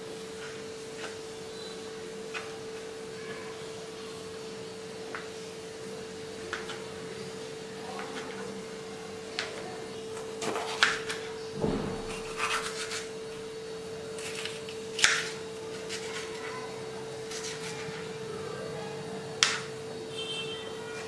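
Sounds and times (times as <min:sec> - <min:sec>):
steady hum: 0:00.0 - 0:21.0
knife cutting on plastic board: 0:10.2 - 0:13.2, 0:14.2 - 0:16.5, 0:17.2 - 0:18.0.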